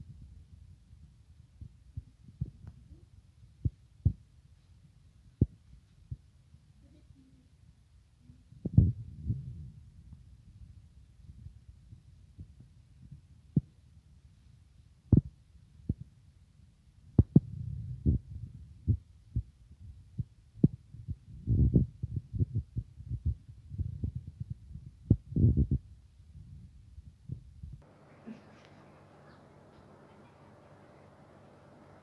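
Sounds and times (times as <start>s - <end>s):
low rumble: 8.2s - 13.6s.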